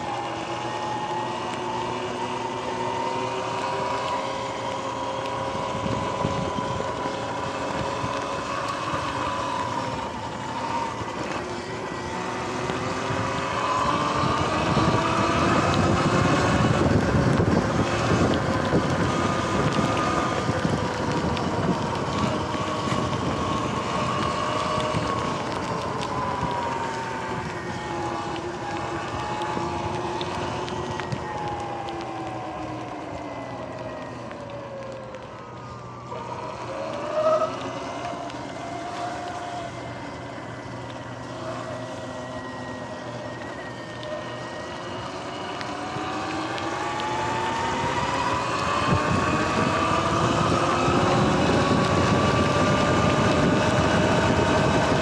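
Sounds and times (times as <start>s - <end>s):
electric dirt bike motor whining: 0.0s - 55.0s
wind on microphone: 4.4s - 33.6s, 44.2s - 55.0s.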